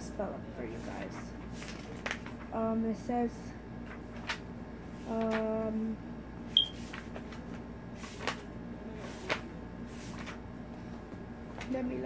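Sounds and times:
book pages swishing: 6.5s - 10.4s.

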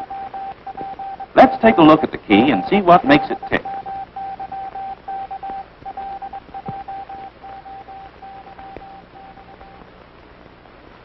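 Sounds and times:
morse code beeps: 0.0s - 9.8s.

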